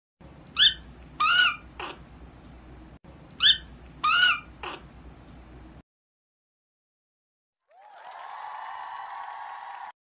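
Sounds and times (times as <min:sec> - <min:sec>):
prairie dog chirping and squealing: 0:00.5 - 0:02.0, 0:03.4 - 0:04.9.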